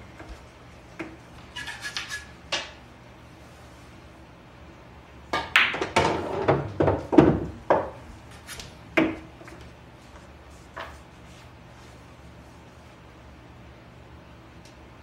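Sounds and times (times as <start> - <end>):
pool balls clicking and knocking: 0.0 - 2.8, 5.3 - 11.2.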